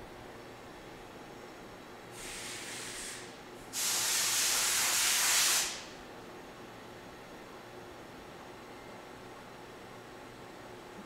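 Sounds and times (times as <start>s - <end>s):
compressed air hissing: 2.2s - 5.9s.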